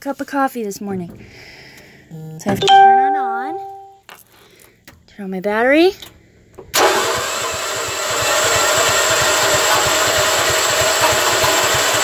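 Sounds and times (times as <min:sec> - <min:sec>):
electric starter cranking engine: 0:06.7 - 0:12.0.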